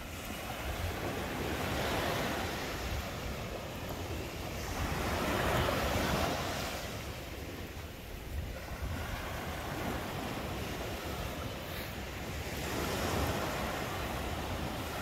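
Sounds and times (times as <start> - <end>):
ocean surf on beach: 0.0 - 15.0
wind rumbling on microphone: 0.0 - 15.0.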